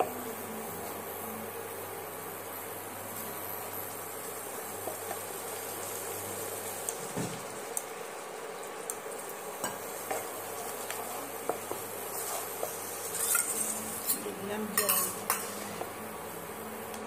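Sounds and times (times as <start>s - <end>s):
low sizzle: 0.0s - 17.0s
spatula scraping a wok: 9.6s - 15.9s.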